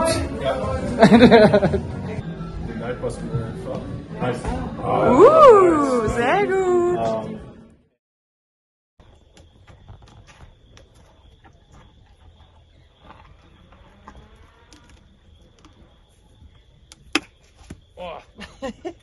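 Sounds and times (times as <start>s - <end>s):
insects droning: 9.0s - 19.0s
horse chewing carrot: 10.2s - 16.2s.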